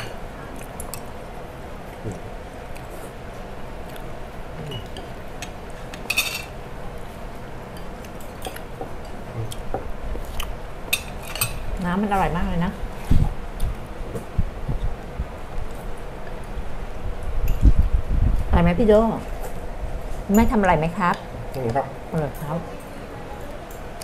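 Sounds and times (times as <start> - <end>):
cutlery and dishes clinking: 6.0 - 6.5.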